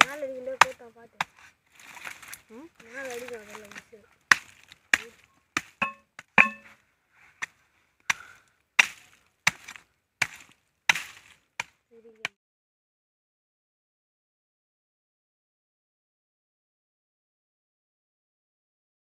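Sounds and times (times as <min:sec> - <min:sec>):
machete chopping wood: 0:03.1 - 0:06.7, 0:08.1 - 0:11.8
blade ringing: 0:05.8 - 0:06.7.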